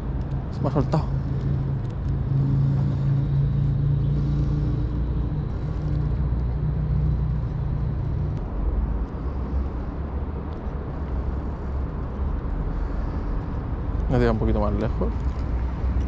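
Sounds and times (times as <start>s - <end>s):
engine drone: 0.0s - 16.0s.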